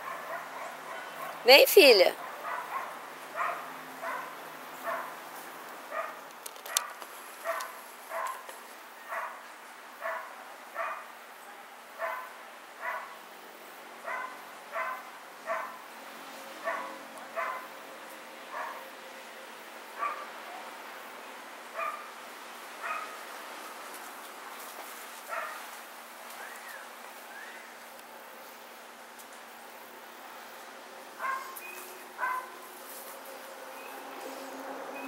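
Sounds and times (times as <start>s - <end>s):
dog barking: 0.0s - 1.4s, 2.2s - 5.2s, 5.9s - 8.5s, 9.1s - 9.4s, 10.0s - 13.2s, 14.0s - 15.8s, 16.6s - 17.7s, 18.5s - 18.9s, 20.0s - 20.7s, 21.8s - 22.1s, 22.8s - 23.2s, 25.3s - 25.6s, 31.2s - 31.6s, 32.2s - 32.6s.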